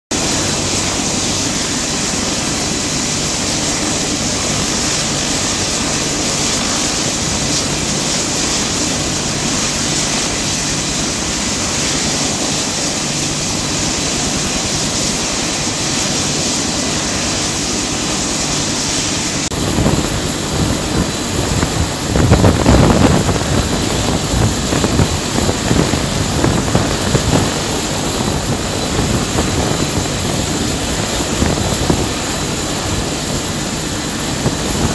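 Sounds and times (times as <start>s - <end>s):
gusting rumble with buffets: 0.1s - 34.9s
helicopter turbine whine: 0.1s - 34.9s.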